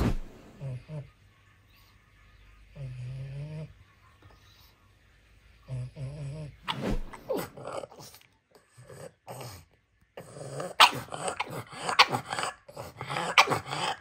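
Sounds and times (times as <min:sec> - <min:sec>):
dog grumbling and growling: 0:02.7 - 0:03.8, 0:05.7 - 0:14.0.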